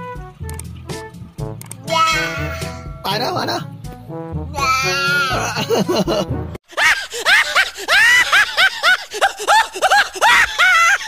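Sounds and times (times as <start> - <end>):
high-pitched rising and falling cries: 1.9 - 3.1
young child giggling: 6.8 - 11.0.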